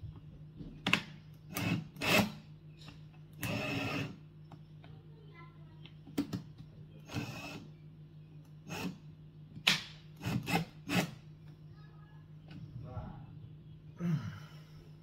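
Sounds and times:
cordless drill bursts: 3.4s - 4.2s, 7.1s - 7.6s
drill bit grinding in plastic: 3.4s - 4.2s.

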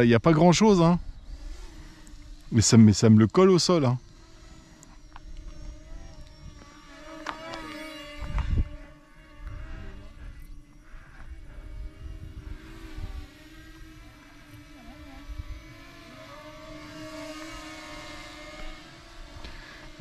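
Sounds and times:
rc aircraft propellers humming: 0.0s - 20.0s
wind on microphone: 7.9s - 14.1s.

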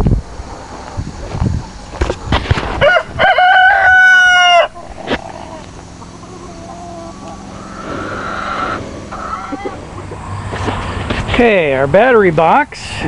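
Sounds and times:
rooster crowing: 2.8s - 9.8s.

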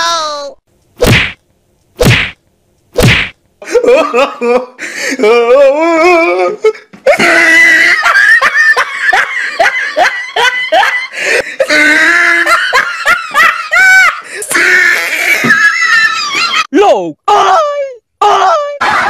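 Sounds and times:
sharp slapping hits: 1.0s - 1.4s, 2.0s - 2.4s, 3.0s - 3.4s.

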